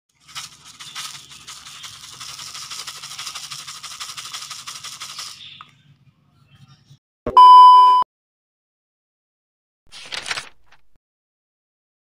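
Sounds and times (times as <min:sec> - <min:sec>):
seeds rattling in a bowl: 0:00.1 - 0:05.6.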